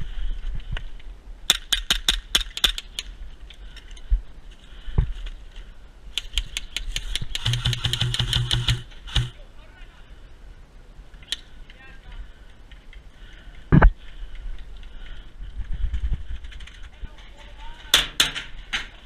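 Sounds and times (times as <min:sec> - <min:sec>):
electric airsoft rifle burst: 0:06.9 - 0:09.4
airsoft pistol shots: 0:07.4 - 0:09.3.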